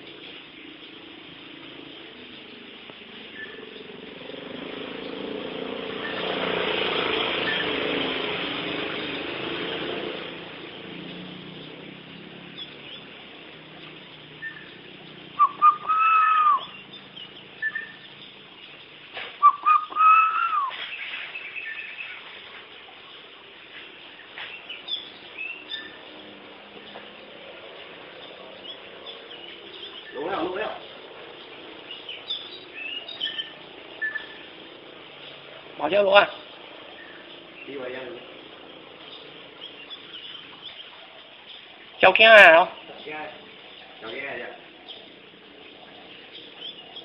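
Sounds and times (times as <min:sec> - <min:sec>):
whistled calls: 0:00.6 - 0:22.3, 0:24.1 - 0:26.1, 0:28.2 - 0:47.0.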